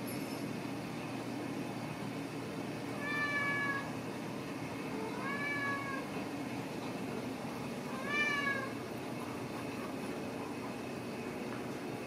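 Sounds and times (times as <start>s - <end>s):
kitten meowing: 3.0s - 3.9s, 5.1s - 6.0s, 8.0s - 8.7s.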